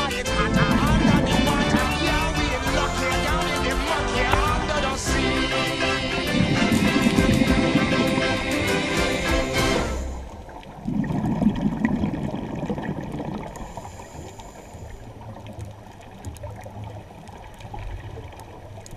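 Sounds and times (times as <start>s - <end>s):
background music: 0.0s - 10.4s
low underwater rumble: 0.0s - 18.9s
diver's exhaled bubbles gurgling: 0.4s - 4.5s, 10.0s - 18.9s.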